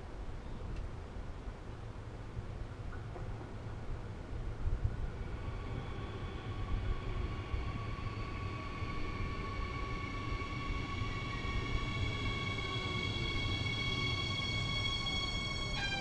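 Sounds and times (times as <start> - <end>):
train low rumble: 0.0 - 16.0
train high whine: 3.7 - 16.0.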